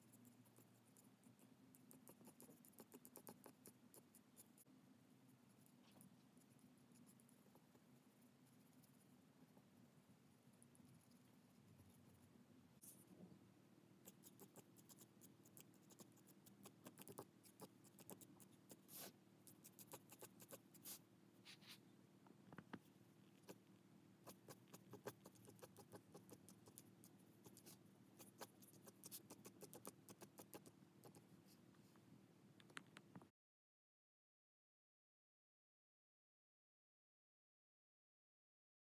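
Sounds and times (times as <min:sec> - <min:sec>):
pen scratching on paper: 0:00.0 - 0:04.6, 0:14.1 - 0:21.8, 0:24.3 - 0:31.2
faint steady hum: 0:00.0 - 0:33.3.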